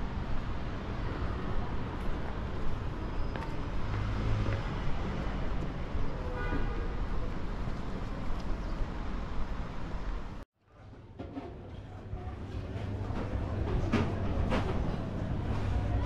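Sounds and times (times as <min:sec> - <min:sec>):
traffic rumble: 0:00.0 - 0:16.0
passers-by voices: 0:10.7 - 0:16.0.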